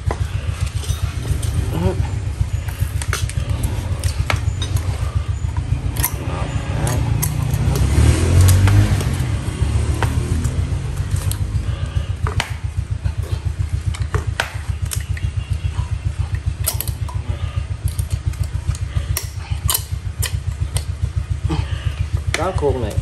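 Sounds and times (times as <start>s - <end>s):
machine throbbing drone: 0.0s - 23.0s
steel wire clicking: 2.4s - 9.3s, 10.0s - 11.5s, 13.9s - 17.2s, 17.8s - 21.1s.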